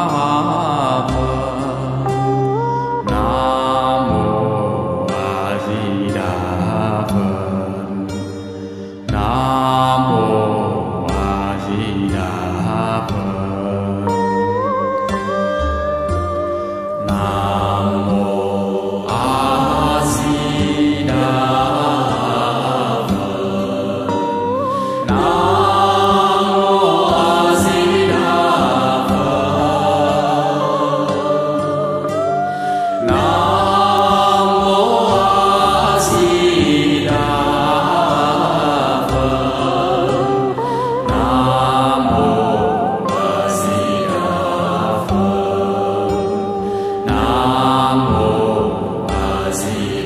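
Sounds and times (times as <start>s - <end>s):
musical accompaniment: 0.0s - 50.0s
voices chanting: 17.1s - 50.0s.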